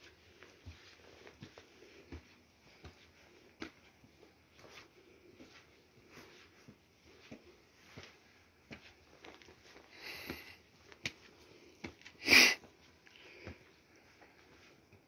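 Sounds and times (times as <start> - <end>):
footsteps on stone steps: 0.0 - 13.7
person sniffing: 12.2 - 12.6.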